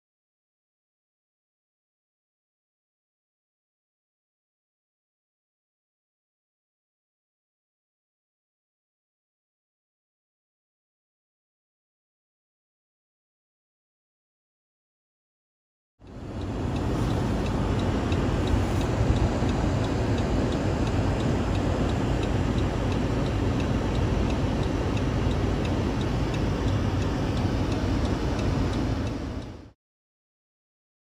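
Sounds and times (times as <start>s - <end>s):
engine running: 16.0s - 29.7s
light even ticking: 16.0s - 29.7s.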